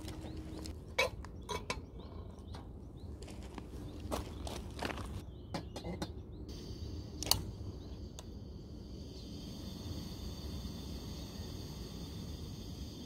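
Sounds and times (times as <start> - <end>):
gas stove hissing: 6.5 - 13.0.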